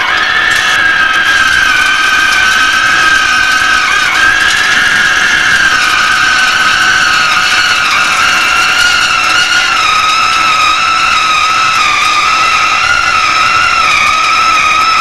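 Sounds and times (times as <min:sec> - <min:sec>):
lathe cutting tool squealing: 0:00.0 - 0:15.0.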